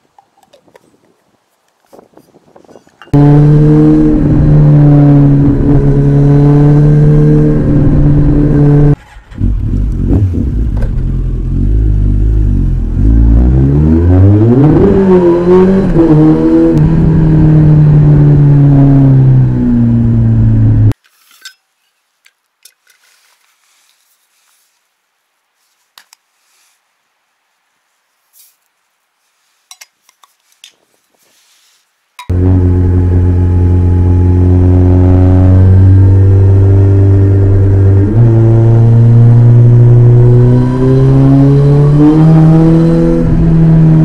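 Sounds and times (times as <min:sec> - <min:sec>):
motorcycle engine revving: 0:03.1 - 0:21.0, 0:32.3 - 0:44.0.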